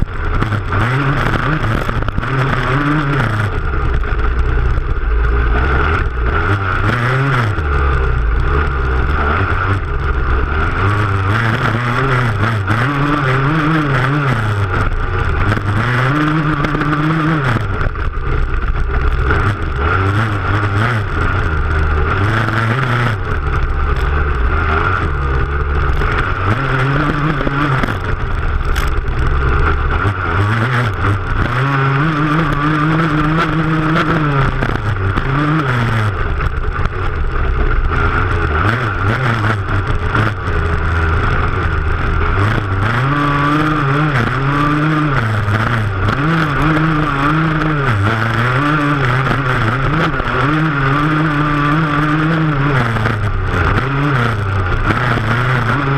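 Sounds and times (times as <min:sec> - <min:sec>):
dirt bike engine revving: 0:00.0 - 0:55.9.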